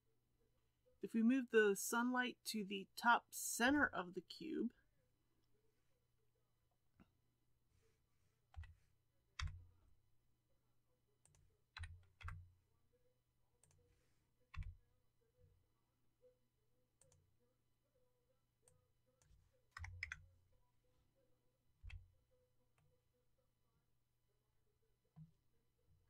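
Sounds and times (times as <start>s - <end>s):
computer keys clicking: 9.4s - 9.6s, 11.3s - 12.4s, 19.2s - 20.2s.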